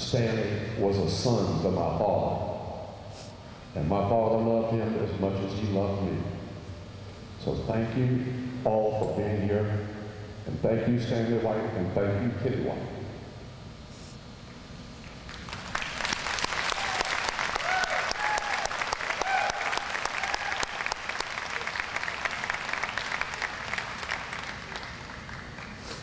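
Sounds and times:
audience applauding: 15.3 - 26.0.

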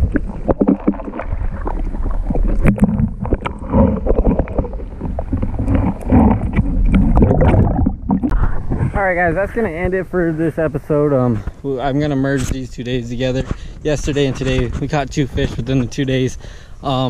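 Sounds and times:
muffled water sloshing underwater: 0.0 - 10.0.

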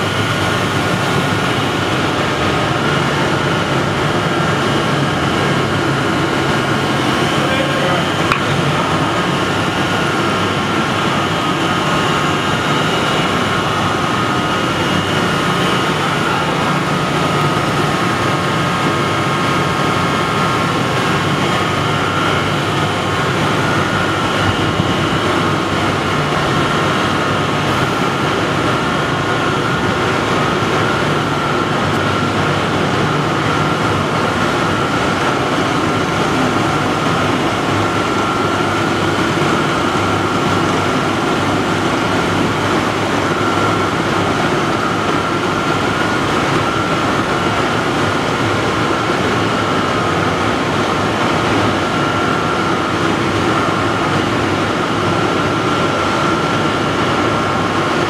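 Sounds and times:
industrial machinery din: 0.0 - 58.0.

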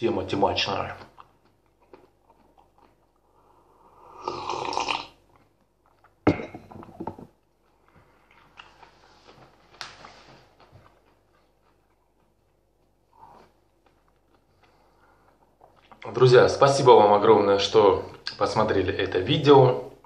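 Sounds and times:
man slurping tea: 3.8 - 5.2.

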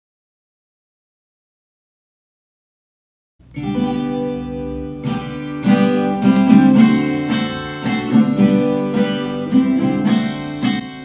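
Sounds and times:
strummed acoustic guitar chords: 3.4 - 11.0.

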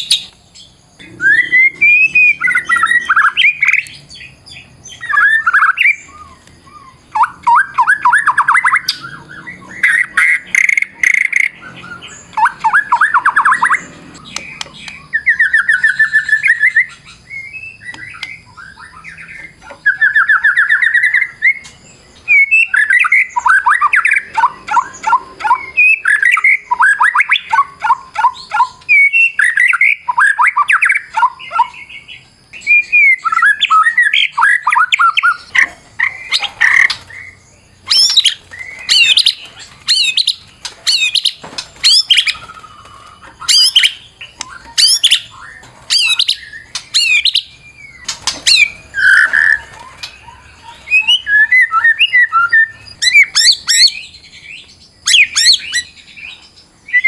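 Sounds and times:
songbird singing: 0.0 - 57.0.

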